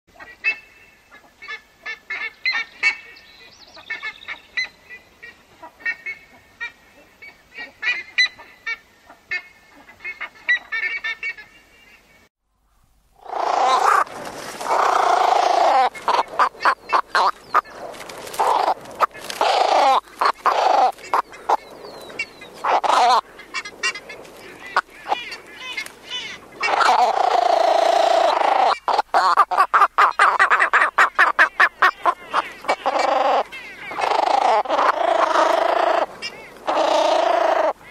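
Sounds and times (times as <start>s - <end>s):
ibises calling: 13.2s - 37.9s.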